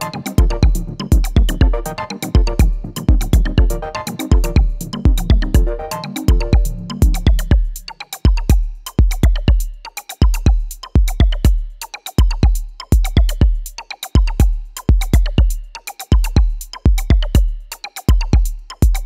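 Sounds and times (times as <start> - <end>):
pitched synth notes: 0.0 - 7.5
electronic drum machine beat: 0.0 - 19.0.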